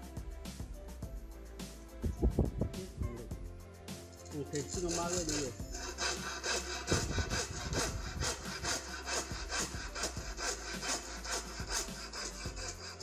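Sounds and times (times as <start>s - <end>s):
hand saw cutting wood: 4.3s - 13.0s.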